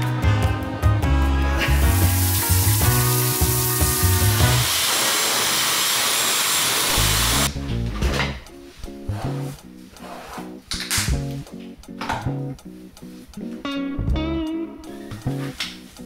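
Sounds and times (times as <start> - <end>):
music with heavy beat: 0.0 - 4.7
soft guitar music: 0.0 - 4.7, 7.5 - 16.0
hair dryer blowing: 1.9 - 7.5.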